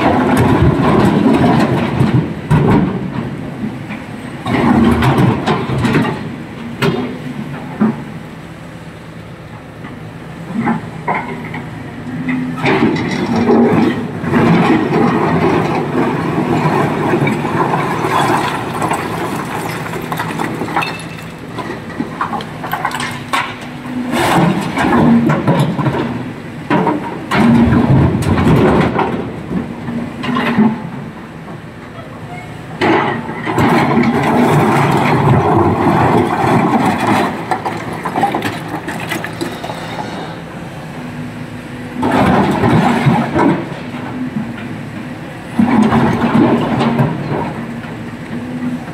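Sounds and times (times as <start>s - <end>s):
excavator engine running hard: 0.0s - 48.9s
rocks crashing into steel truck bed: 12.7s - 23.6s, 32.8s - 39.7s.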